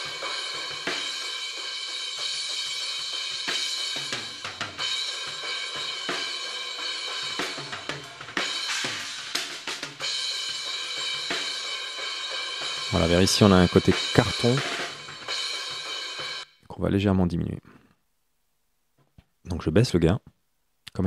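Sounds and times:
thin filtered drum kit: 0.0s - 16.5s.

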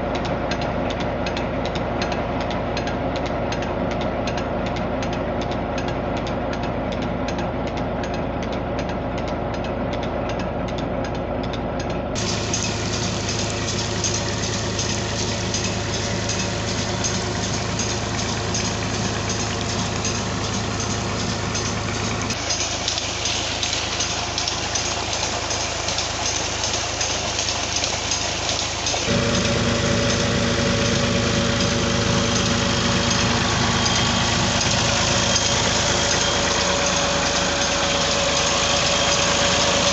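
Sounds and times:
diesel tractor engine running: 0.0s - 39.9s
water rushing from pump: 12.2s - 39.9s.

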